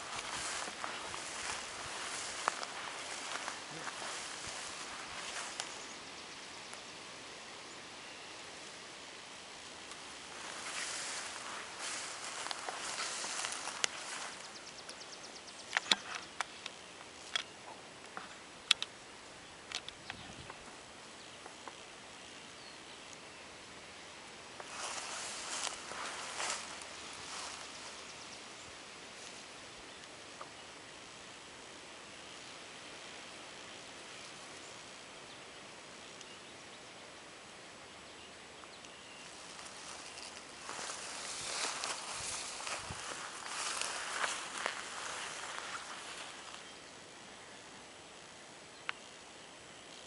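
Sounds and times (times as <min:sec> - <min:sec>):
grass and twigs snapping underfoot: 0:00.0 - 0:05.9, 0:09.6 - 0:19.0, 0:24.6 - 0:28.2, 0:38.8 - 0:46.7
light rustling: 0:00.0 - 0:05.9, 0:09.9 - 0:15.0, 0:24.6 - 0:28.0, 0:39.3 - 0:46.6
faint steady hiss: 0:00.0 - 0:50.0.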